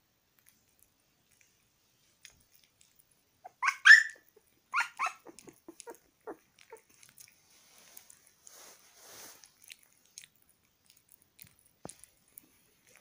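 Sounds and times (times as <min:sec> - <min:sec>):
puppy licking and chewing: 0:00.3 - 0:13.0
puppy yipping: 0:03.4 - 0:07.1.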